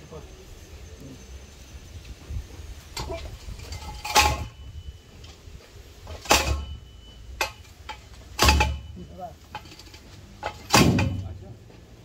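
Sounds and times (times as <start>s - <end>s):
heavy thuds of pipe pounding: 6.1s - 6.8s, 7.4s - 9.8s, 10.4s - 11.4s.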